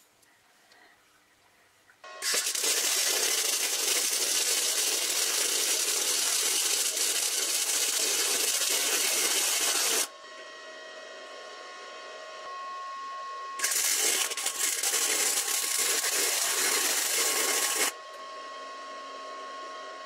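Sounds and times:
steady hum: 1.7 - 20.0
arc welding crackling hiss: 2.2 - 10.1, 13.6 - 17.9.

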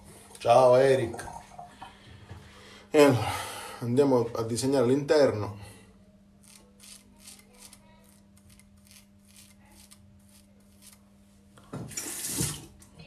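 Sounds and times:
low steady hum: 0.0 - 13.0
razor scraping stubble: 6.4 - 11.1.

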